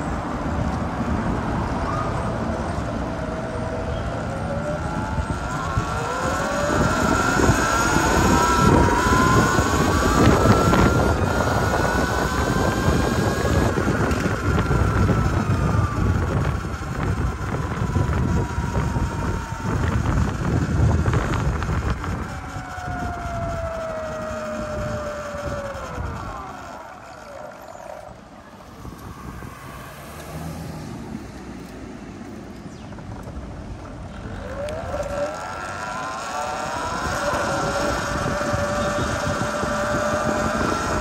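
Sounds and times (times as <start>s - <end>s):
electric motorbike motor whining: 0.0s - 41.0s
wind rumbling on microphone: 0.0s - 41.0s.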